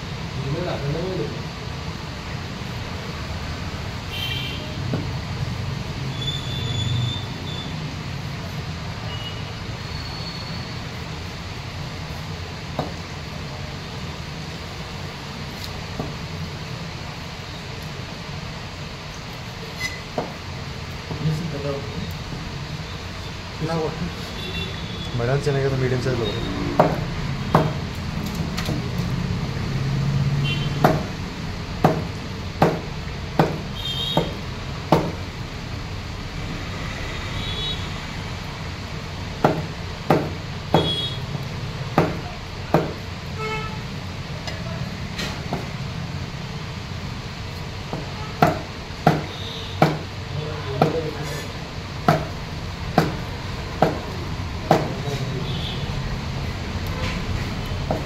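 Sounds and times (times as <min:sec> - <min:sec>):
blade chopping fish on wood: 0:30.8 - 0:31.2, 0:31.8 - 0:35.2, 0:39.4 - 0:41.0, 0:41.9 - 0:43.0, 0:47.9 - 0:50.1, 0:52.0 - 0:53.2, 0:53.8 - 0:55.0.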